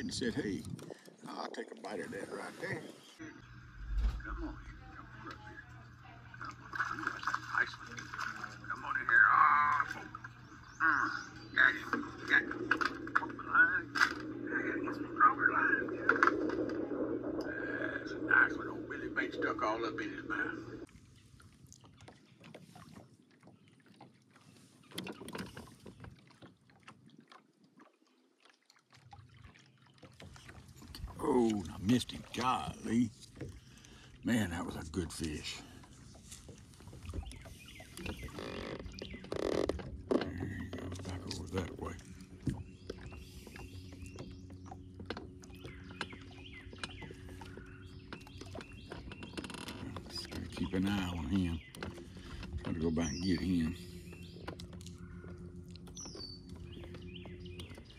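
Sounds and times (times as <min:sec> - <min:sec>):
water lapping against boat hull: 0:00.0 - 0:57.9
steady low hum: 0:03.2 - 0:08.9, 0:10.2 - 0:20.9
small birds chirping: 0:08.8 - 0:13.9, 0:30.2 - 0:57.9.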